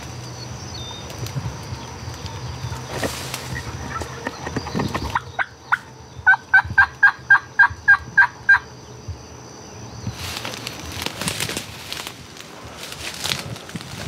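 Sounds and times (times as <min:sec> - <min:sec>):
brush rustling: 0:01.0 - 0:05.2, 0:10.1 - 0:14.0
turkey yelping: 0:05.1 - 0:08.7.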